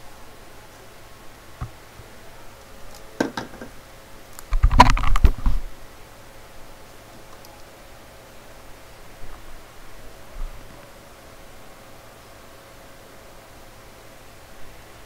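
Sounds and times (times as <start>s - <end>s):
knocks and rubbing: 3.2s - 3.8s
handling noise on microphone: 4.5s - 5.7s.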